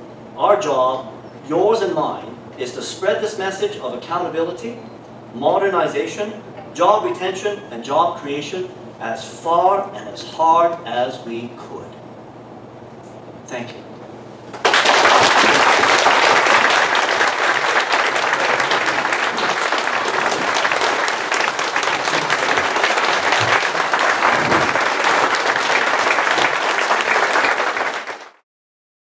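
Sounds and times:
audience applauding: 14.5 - 28.4.

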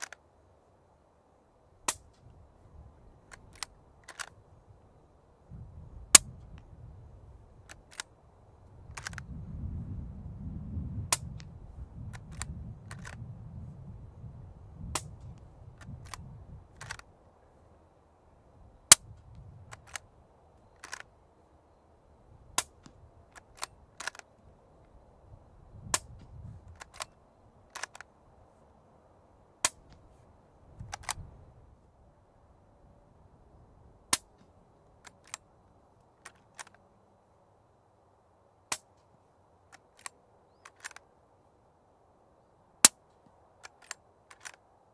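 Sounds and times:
light clicks: 39.7 - 41.1.

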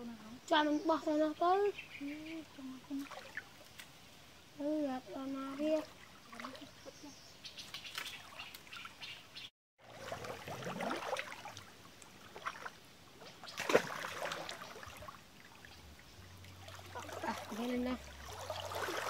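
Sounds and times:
water sloshing around wading legs: 2.9 - 4.4, 5.2 - 19.0
sharp loud splash: 9.8 - 11.7, 13.4 - 15.2.

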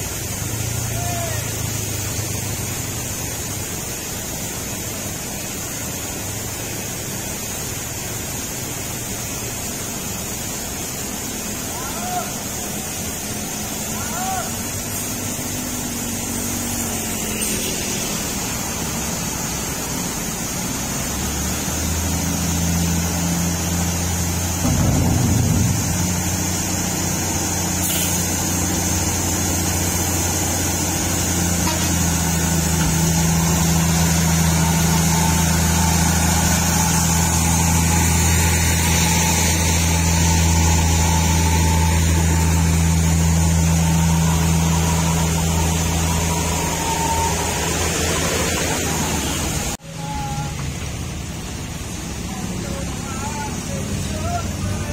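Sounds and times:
diesel truck engine running: 0.0 - 54.9
rough rumble: 23.0 - 49.8.

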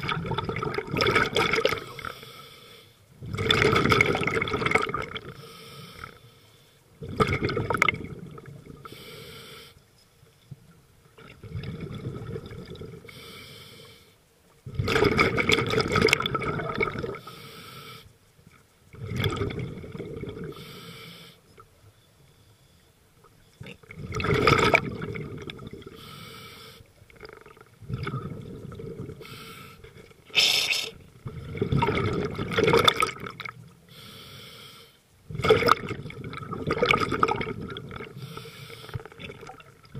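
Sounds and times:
exhaled bubbles rushing: 0.0 - 2.0, 3.2 - 5.3, 7.0 - 8.8, 11.2 - 13.0, 14.7 - 17.2, 18.9 - 20.5, 23.6 - 25.9, 27.2 - 29.2, 31.2 - 33.6, 35.3 - 38.2, 39.0 - 39.9
hissing regulator inhale: 1.8 - 3.0, 5.3 - 6.8, 8.8 - 9.8, 13.1 - 14.2, 17.2 - 18.2, 20.5 - 21.4, 25.9 - 26.9, 29.2 - 31.0, 33.9 - 35.1, 38.2 - 39.1.

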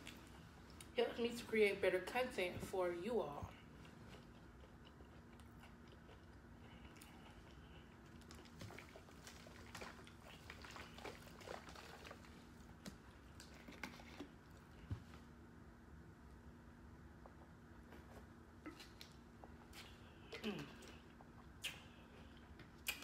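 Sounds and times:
quiet chewing: 3.4 - 15.3, 17.2 - 23.0
soft mouth clicks: 21.6 - 22.0, 22.8 - 23.0.

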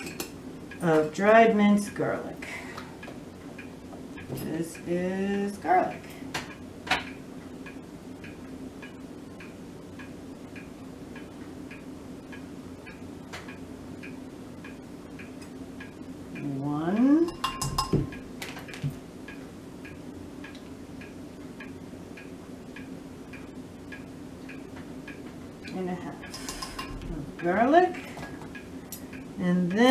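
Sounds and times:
low steady hum: 0.0 - 29.9.

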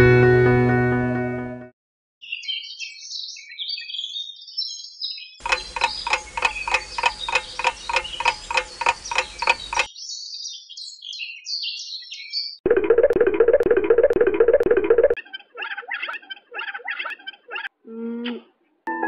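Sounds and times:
birds chirping: 2.2 - 12.6, 14.8 - 17.7
clock ticking fast: 5.4 - 9.9, 12.7 - 15.2.

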